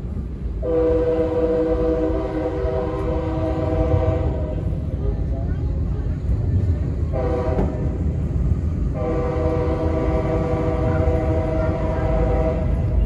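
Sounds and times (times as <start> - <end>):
train rumbling: 0.0 - 13.0
locomotive horn blasts: 0.6 - 4.6, 7.1 - 7.8, 9.0 - 13.0.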